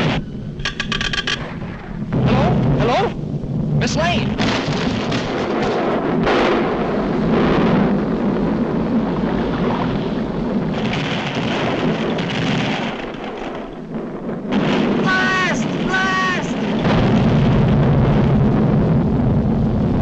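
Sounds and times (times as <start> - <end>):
crackling: 0.0 - 20.0
volcanic eruption roar: 1.3 - 20.0
hissing rush: 10.8 - 17.4.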